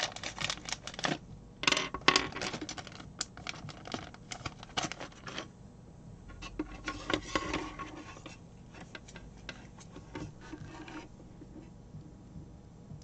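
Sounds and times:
cable rustling: 0.0 - 1.3, 1.9 - 5.5, 6.4 - 11.7.

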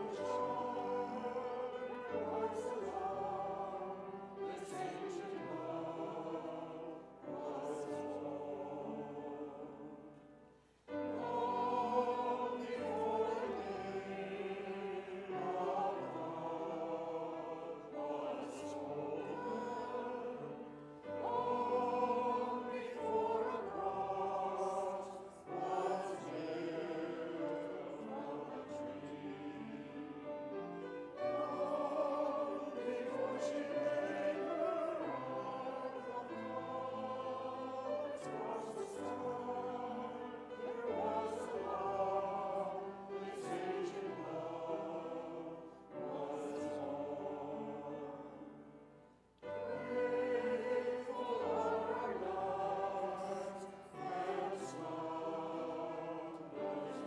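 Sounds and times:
choir singing a hymn: 0.0 - 57.0.

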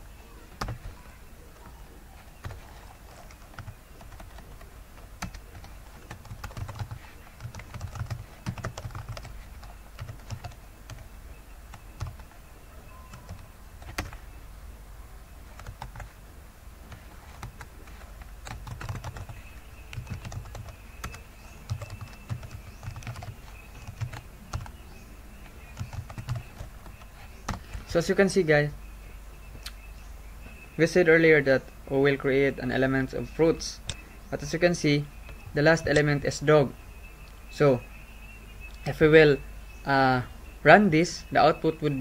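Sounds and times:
steady low hum: 0.0 - 42.0
typing on computer keyboard: 0.6 - 0.9, 2.4 - 11.0, 11.7 - 12.3, 13.1 - 14.2, 15.6 - 16.1, 16.9 - 24.7, 25.8 - 27.8.

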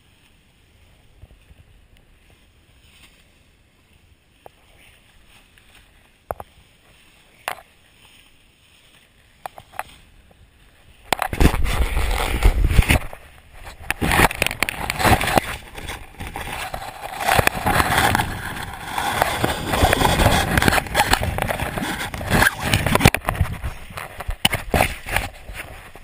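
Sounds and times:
rustling and small knocks: 0.2 - 26.0
wind buffeting microphone: 10.4 - 26.0.

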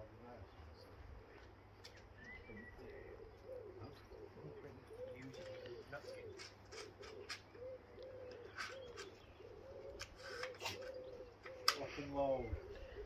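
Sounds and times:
pigeon cooing: 0.9 - 13.0.

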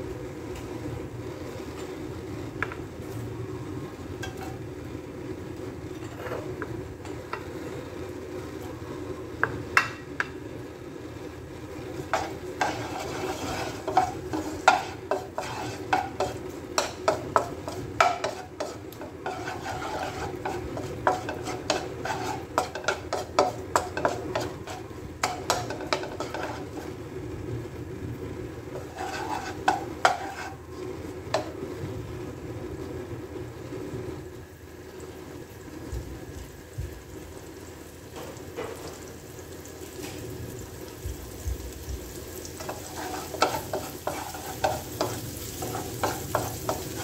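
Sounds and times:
garlic sizzling in oil: 0.0 - 47.0
wooden spoon scraping a pan: 11.8 - 27.0, 28.7 - 31.6, 42.5 - 47.0.

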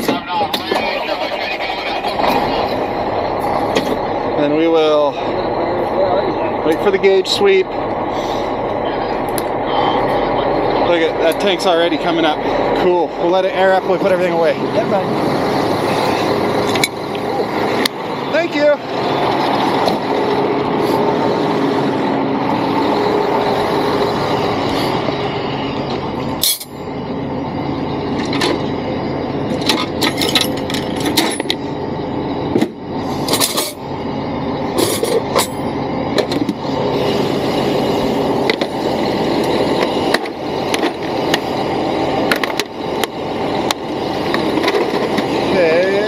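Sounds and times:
truck engine idling: 0.0 - 46.0
tools clattering into metal toolbox: 29.7 - 31.6.

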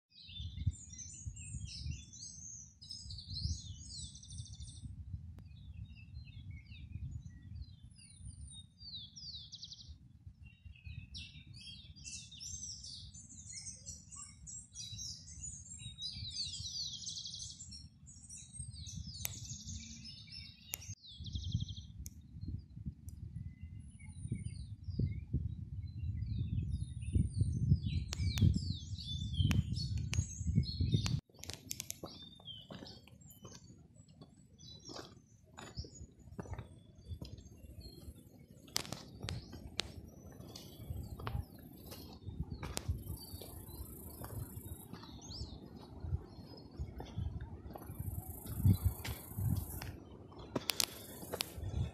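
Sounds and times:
wind rumble on microphone: 0.1 - 33.8, 34.6 - 51.9
small birds chirping: 0.1 - 51.9.

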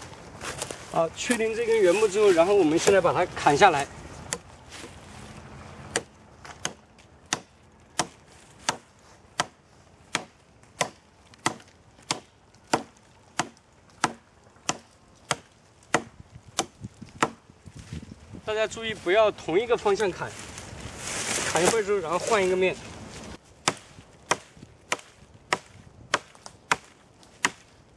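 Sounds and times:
hatchet chopping wood: 2.7 - 3.1, 4.3 - 4.5, 5.9 - 17.4, 23.6 - 27.7.

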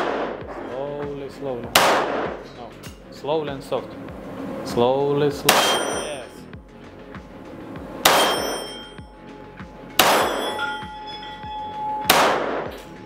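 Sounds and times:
pistol shots echoing indoors: 0.0 - 0.6, 1.7 - 2.5, 5.5 - 6.2, 8.0 - 8.6, 10.0 - 10.7, 12.0 - 13.0
short metallic ringing: 8.2 - 9.0.

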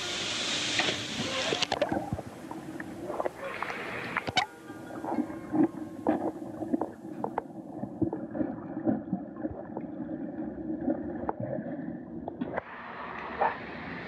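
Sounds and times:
muffled underwater churning water: 0.0 - 14.0.

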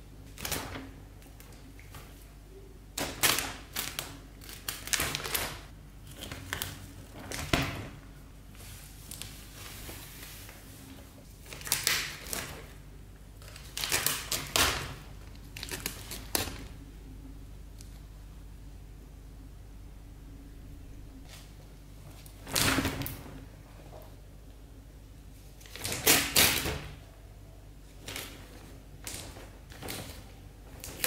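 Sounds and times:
paper crinkling and tearing: 3.0 - 7.7, 8.6 - 12.8, 13.4 - 16.7.

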